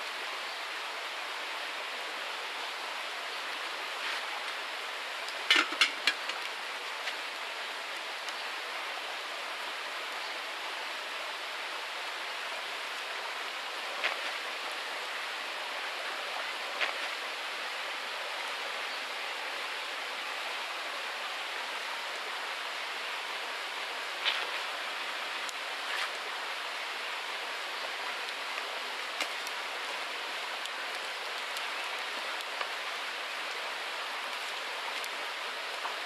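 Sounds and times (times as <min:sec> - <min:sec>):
campfire pops: 0:05.3 - 0:07.3, 0:14.0 - 0:14.4, 0:16.8 - 0:17.2, 0:29.1 - 0:29.6.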